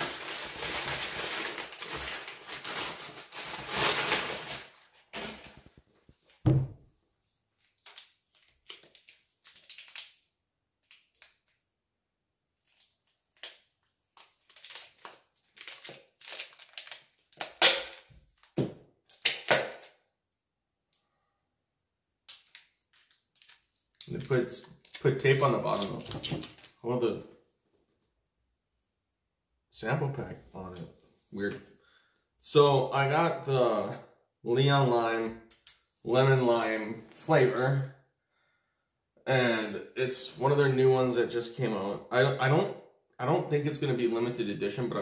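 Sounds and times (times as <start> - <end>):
packing paper crumpling: 0.0 - 5.8, 7.6 - 10.2, 12.6 - 18.6, 22.4 - 26.8
low thunk: 6.4 - 6.8.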